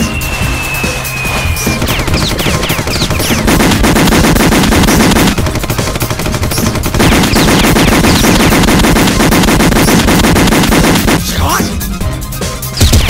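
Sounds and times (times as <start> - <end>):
short falling whistles: 0.0 - 2.6
submachine gun automatic fire: 1.8 - 11.2.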